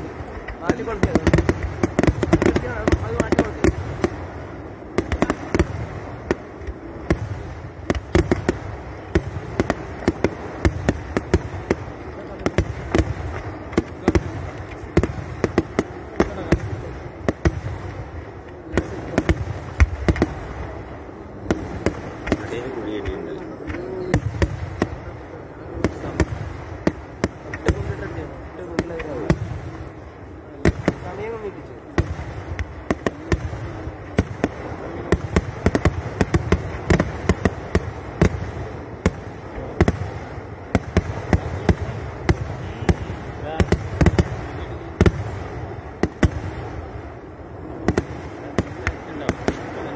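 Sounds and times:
continuous low rumble: 0.0s - 49.9s
firecracker bangs: 0.0s - 49.9s
steady fireworks crackle: 0.0s - 49.9s.

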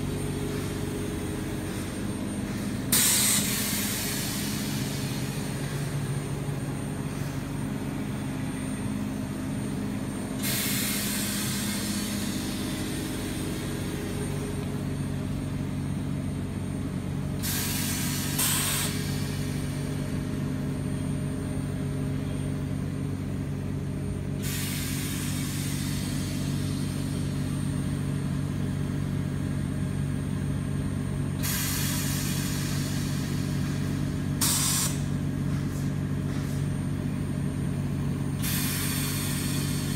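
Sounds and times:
gas hissing: 0.0s - 6.4s, 10.4s - 14.9s, 17.3s - 20.0s, 24.4s - 27.3s, 31.4s - 35.9s, 38.4s - 39.9s
machine low mechanical hum: 0.0s - 39.9s.

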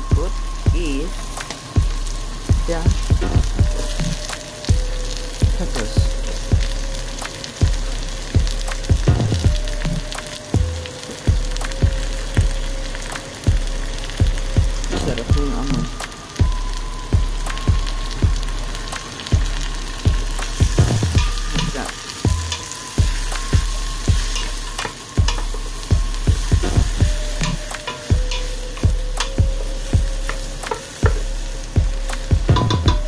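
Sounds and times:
background music with beat: 0.0s - 33.0s
vegetables sizzling in a pot: 0.0s - 33.0s
wooden spoon stirring: 18.0s - 33.0s.

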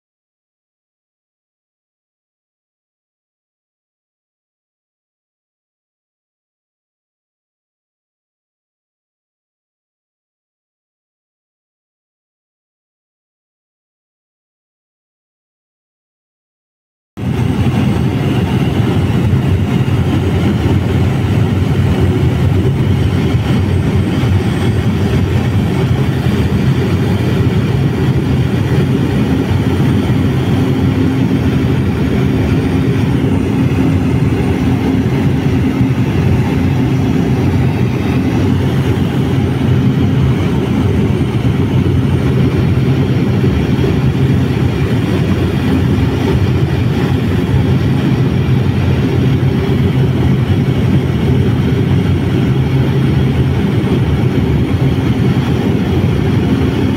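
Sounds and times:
aircraft engine drone in cabin: 17.2s - 56.9s.

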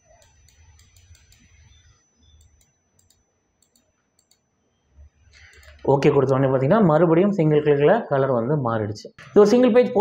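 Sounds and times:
computer mouse clicks: 0.1s - 4.4s, 5.3s - 5.9s.

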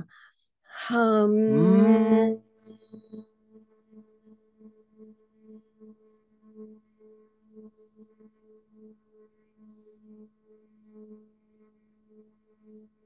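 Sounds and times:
person humming: 1.2s - 2.4s.

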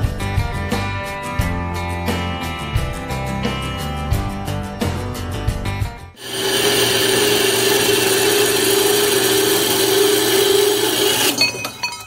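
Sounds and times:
bandsaw cutting steel: 6.2s - 11.9s.

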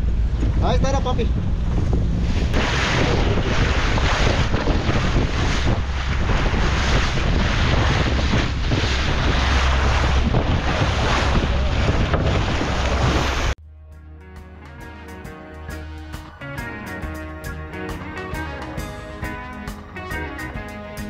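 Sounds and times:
water rushing along hull: 0.0s - 13.6s
wind buffeting microphone: 0.0s - 13.6s.

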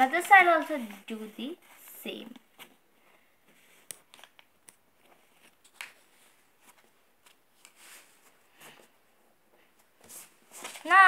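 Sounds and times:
paper being folded and creased: 0.0s - 2.8s, 10.1s - 11.0s.

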